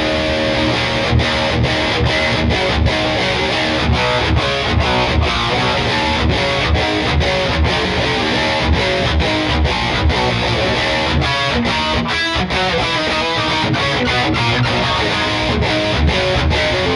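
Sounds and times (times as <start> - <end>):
distorted electric guitar riffing: 0.0 - 16.9.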